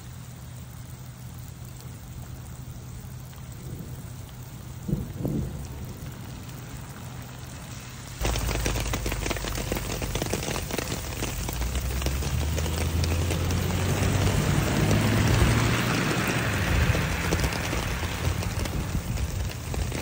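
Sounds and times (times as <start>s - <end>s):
rain pattering: 0.0s - 20.0s.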